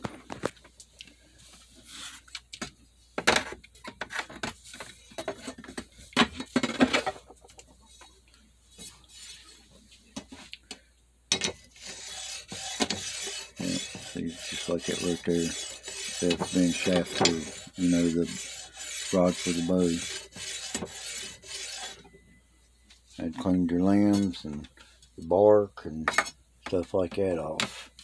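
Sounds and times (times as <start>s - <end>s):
rod scraping along stone: 11.8s - 22.0s.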